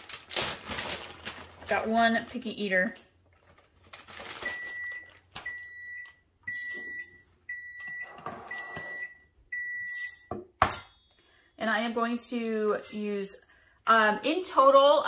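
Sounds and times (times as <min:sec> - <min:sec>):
high-pitched appliance alarm beeps: 0:04.4 - 0:10.4.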